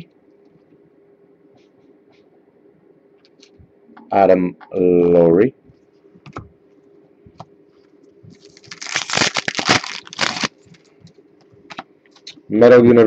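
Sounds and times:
foil wrapper tearing and crinkling: 8.4s - 10.9s.

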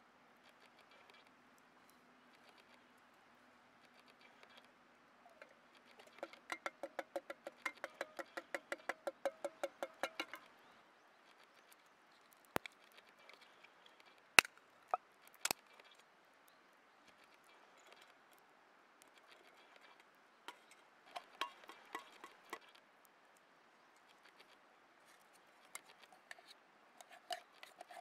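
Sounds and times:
ringing metal strokes on pot: 20.5s - 22.6s.

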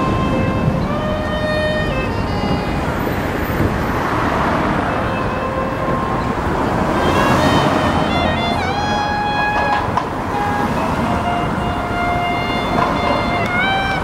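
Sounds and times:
cars driving past: 0.0s - 14.0s.

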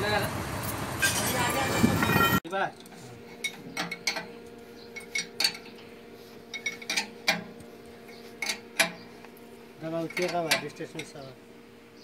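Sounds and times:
steady low hum: 0.0s - 12.0s
metal tools clinking on pipe fittings: 0.6s - 5.9s, 6.5s - 7.5s, 8.4s - 9.0s, 10.0s - 11.3s.

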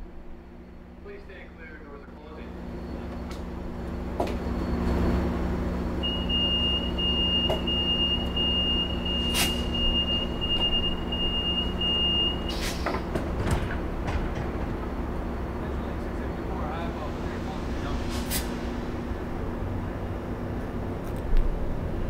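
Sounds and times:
train idling hum: 0.0s - 22.0s
sliding doors clunk: 3.0s - 5.1s, 6.0s - 16.2s
door warning tone: 6.0s - 12.6s.

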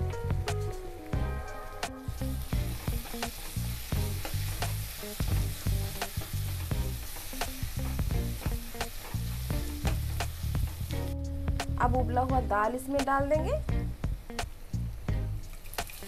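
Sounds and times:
masala sizzling: 0.0s - 16.0s.

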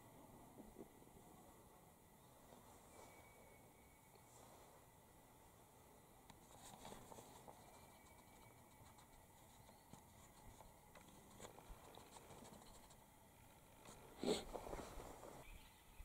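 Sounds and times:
light scratchy rustles: 6.4s - 13.0s, 13.8s - 15.5s.

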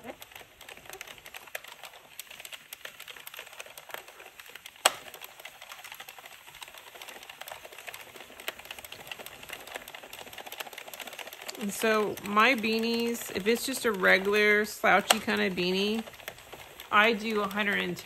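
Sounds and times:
knitting machine needles clicking: 0.0s - 18.0s.

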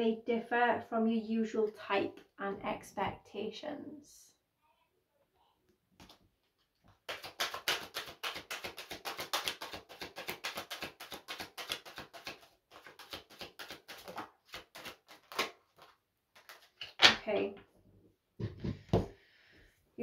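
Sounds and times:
cards being shuffled: 6.0s - 17.2s.

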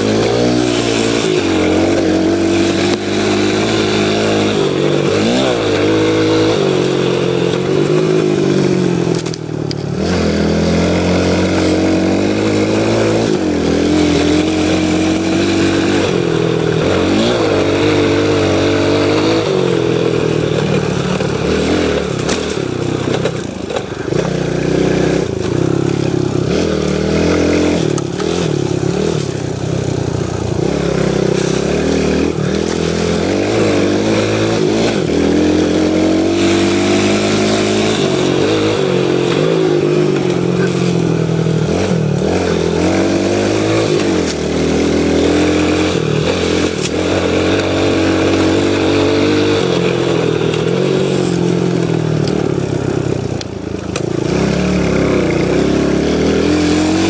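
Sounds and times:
pit bike engine revving: 0.0s - 57.0s
bike knocks and rattles: 11.3s - 35.7s.

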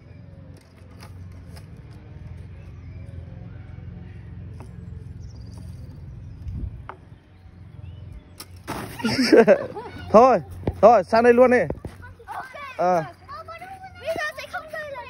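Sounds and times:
wind rumble on microphone: 5.4s - 8.3s.

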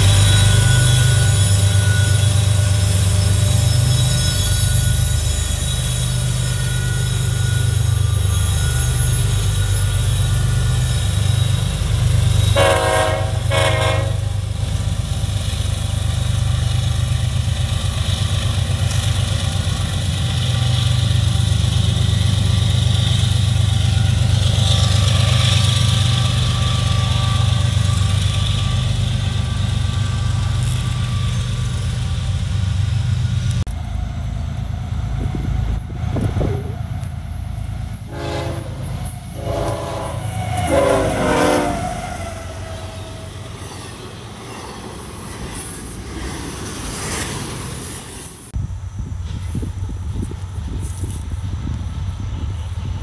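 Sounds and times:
diesel locomotive rumble: 0.0s - 53.0s
locomotive air horn blast: 12.4s - 14.6s, 37.9s - 43.4s.

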